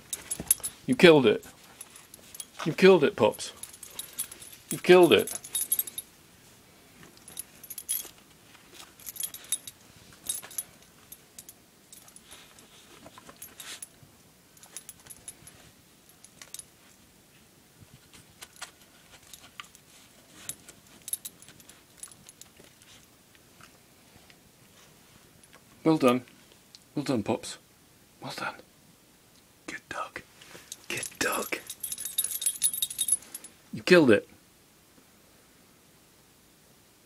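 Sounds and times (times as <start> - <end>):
dog collar fittings jingling: 0.0 - 6.1, 7.2 - 8.2, 8.8 - 13.9, 14.6 - 16.7, 18.4 - 23.0, 30.7 - 33.5.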